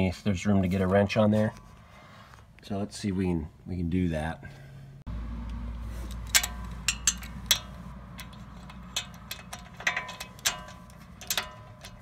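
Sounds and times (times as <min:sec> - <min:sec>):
low steady hum: 0:04.5 - 0:12.0
metallic socket clicks and taps: 0:06.1 - 0:12.0.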